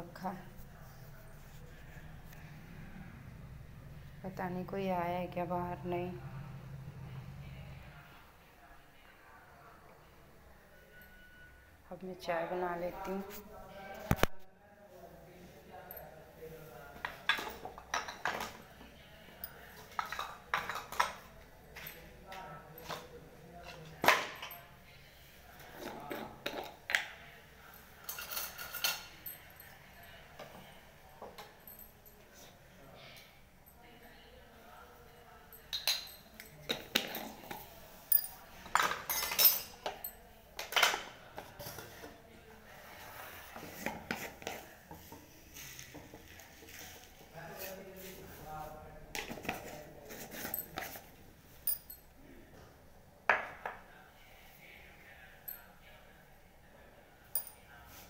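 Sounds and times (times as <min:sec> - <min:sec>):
metal utensils clinking: 0:27.8 - 0:29.6, 0:35.6 - 0:42.0.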